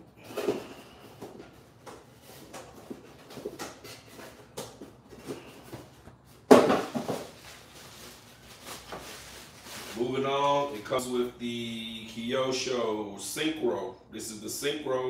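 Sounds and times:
bubble wrap crinkling: 0:06.9 - 0:10.7.

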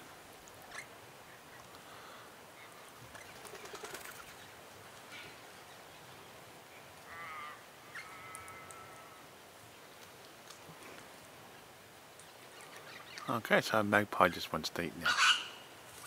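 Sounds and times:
magpie wavering call: 0:15.0 - 0:15.6.

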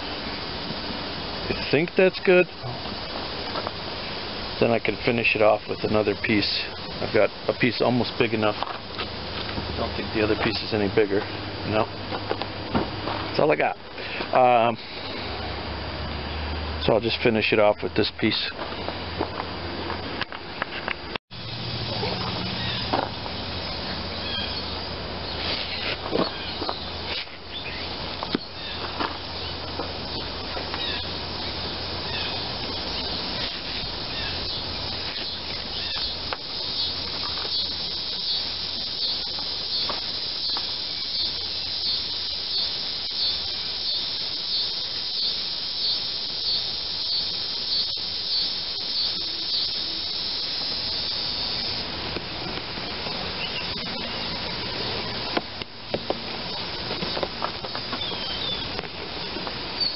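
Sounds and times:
steady high hiss: 0:00.0 - 0:59.9.

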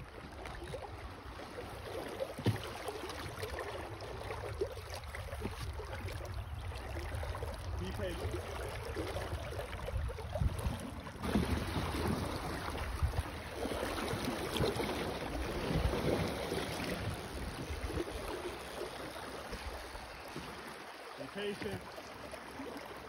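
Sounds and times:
river water lapping and splashing: 0:00.0 - 0:23.0
wind buffeting microphone: 0:06.3 - 0:13.4.

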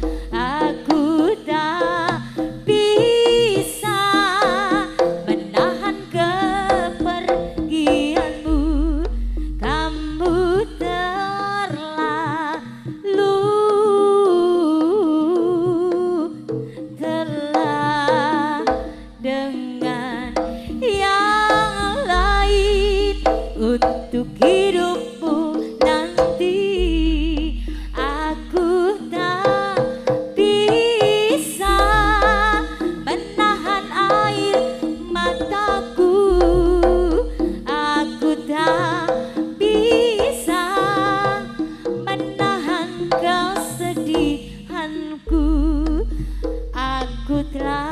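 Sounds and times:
drum strokes: 0:00.0 - 0:11.4, 0:15.7 - 0:47.9
wavering lead melody with vibrato: 0:00.0 - 0:47.9
deep bass tone: 0:07.4 - 0:10.8, 0:20.2 - 0:24.4, 0:26.2 - 0:28.8, 0:31.6 - 0:33.3, 0:36.3 - 0:37.7, 0:45.3 - 0:47.9.

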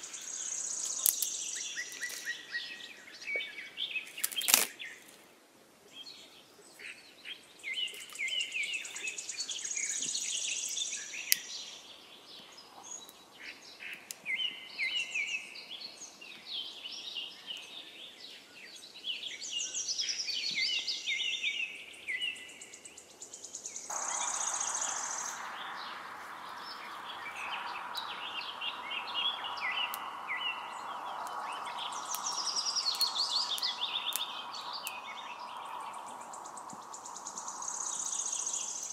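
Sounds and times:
steady hiss: 0:00.0 - 0:03.3, 0:07.6 - 0:11.9, 0:23.0 - 0:38.9
songbirds chirping and singing: 0:00.0 - 0:05.2, 0:05.9 - 0:38.9.

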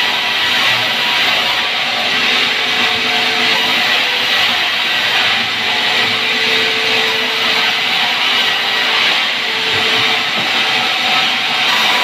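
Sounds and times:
band saw cutting timber: 0:00.0 - 0:12.0.

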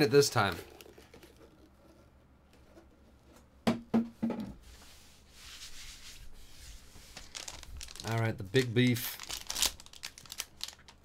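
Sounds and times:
foil card pack rustling: 0:07.1 - 0:11.0.

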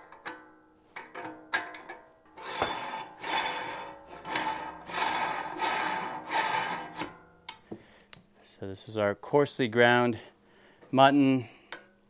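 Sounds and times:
metal scraping on metal: 0:02.3 - 0:07.2.

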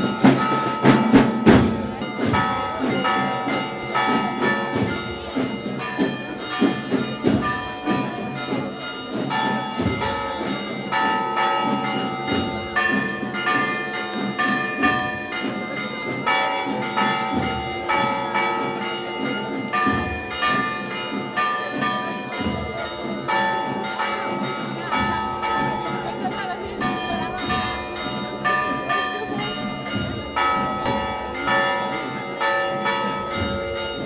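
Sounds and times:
church bells pealing: 0:00.0 - 0:34.0.

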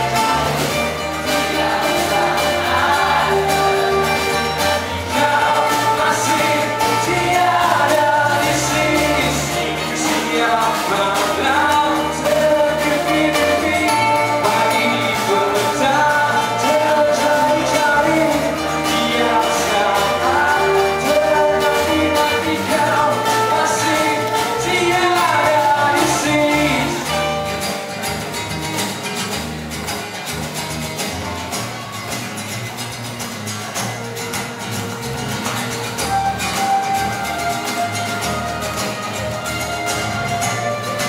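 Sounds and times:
man singing: 0:00.0 - 0:27.5
acoustic guitars strummed: 0:00.0 - 0:41.0
bass and drums: 0:00.0 - 0:41.0.

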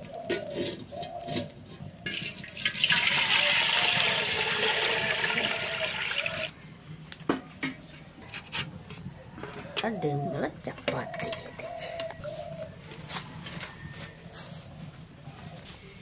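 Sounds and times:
water pouring into metal pot: 0:02.1 - 0:06.5.

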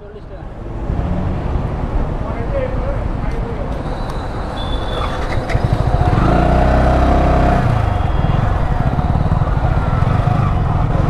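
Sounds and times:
motorcycle engine accelerating: 0:04.6 - 0:11.0.

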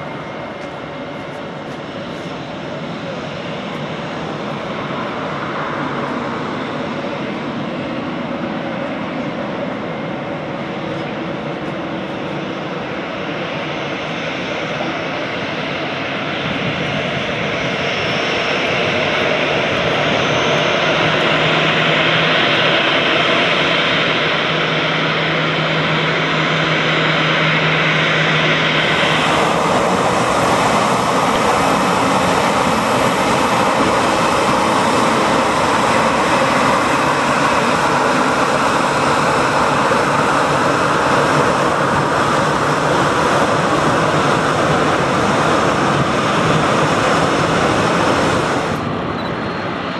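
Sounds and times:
jet engines whining: 0:00.0 - 0:49.9.

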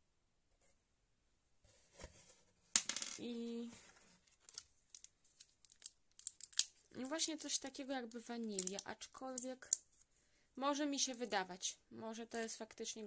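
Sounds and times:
paper and cardboard rustling: 0:01.7 - 0:02.6, 0:03.6 - 0:05.8.

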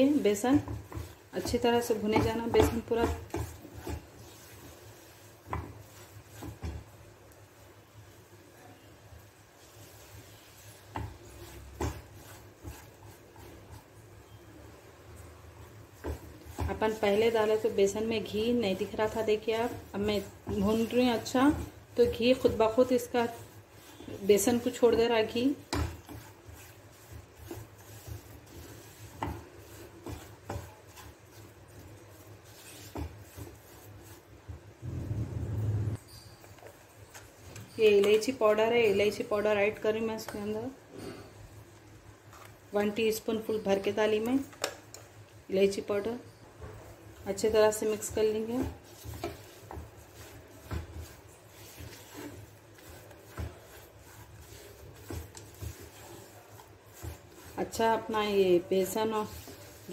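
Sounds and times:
spatula scraping in pan: 0:00.0 - 0:07.1, 0:09.6 - 0:35.3, 0:45.7 - 0:59.9
spatula knocking on pan: 0:00.6 - 0:04.1
low steady hum: 0:34.8 - 0:36.0.

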